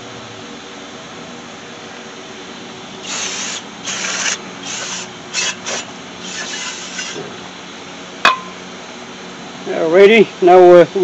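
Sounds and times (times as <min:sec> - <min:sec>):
aerosol spray hissing: 0:03.1 - 0:07.2.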